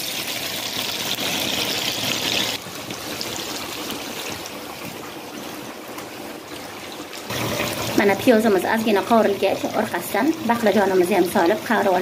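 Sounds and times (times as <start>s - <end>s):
onions sizzling in hot oil: 0.0s - 5.3s, 7.2s - 12.0s.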